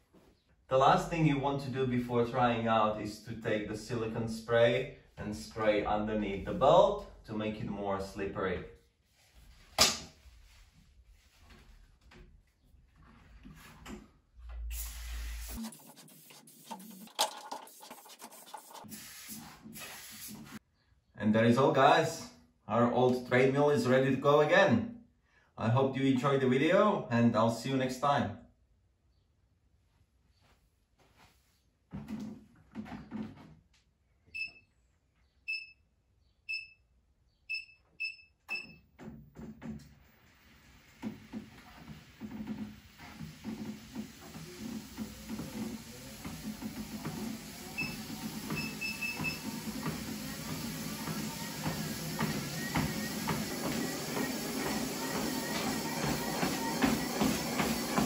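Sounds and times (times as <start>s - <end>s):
aerosol spray hissing: 14.7s - 17.0s, 17.7s - 20.6s
footsteps on treadmill deck: 31.9s - 33.6s, 40.9s - 58.0s
treadmill console beeps: 34.3s - 34.7s, 35.5s - 35.9s, 36.5s - 36.9s, 37.5s - 39.0s, 43.4s - 58.0s
treadmill motor hiss: 40.2s - 58.0s.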